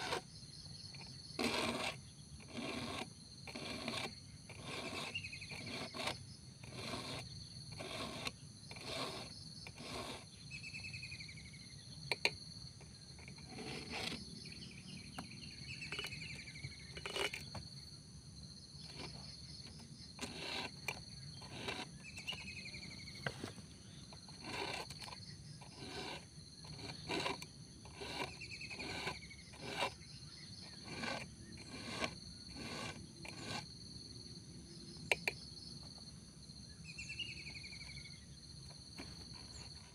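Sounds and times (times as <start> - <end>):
file rasping on chainsaw chain: 0.0 - 0.3, 0.9 - 10.4, 13.2 - 14.3, 16.8 - 17.6, 18.8 - 22.9, 24.1 - 33.8
insects chirping: 0.0 - 39.9.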